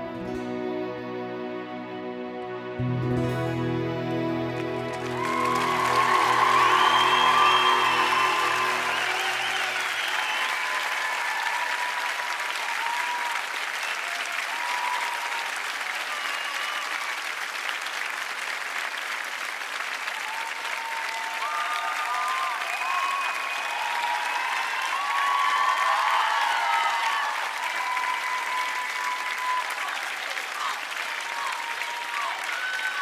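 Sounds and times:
audience applauding: 0:04.0 - 0:33.0
cheering shouts: 0:04.9 - 0:17.4, 0:20.0 - 0:33.0.

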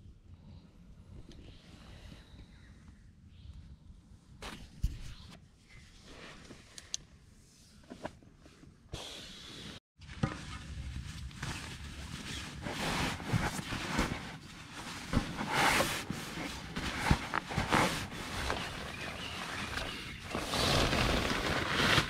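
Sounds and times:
camping gear rustling: 0:10.0 - 0:22.0
crinkly foil mat shifting: 0:10.4 - 0:22.0.

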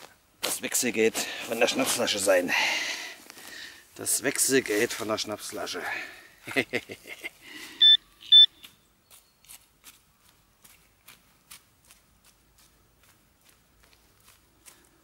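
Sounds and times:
short electronic beeps: 0:07.8 - 0:08.7.

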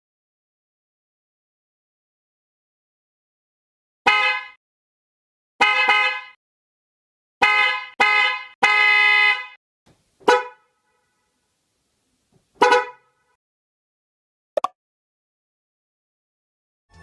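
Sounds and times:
dual-tone electric horn blasts: 0:04.1 - 0:04.6, 0:05.6 - 0:06.4, 0:07.4 - 0:09.6.

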